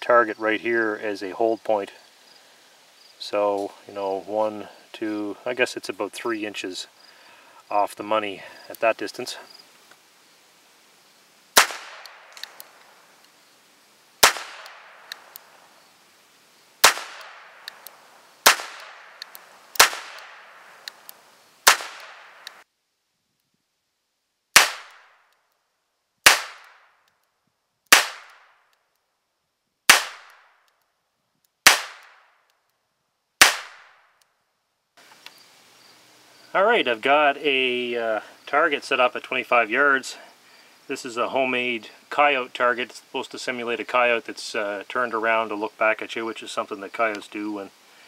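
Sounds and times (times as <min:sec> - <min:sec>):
revolver shots cracking: 0:11.5 - 0:13.0, 0:14.2 - 0:15.6, 0:16.8 - 0:22.6, 0:24.6 - 0:25.1, 0:26.3 - 0:26.8, 0:27.9 - 0:28.5, 0:29.9 - 0:30.5, 0:31.7 - 0:32.2, 0:33.4 - 0:34.0.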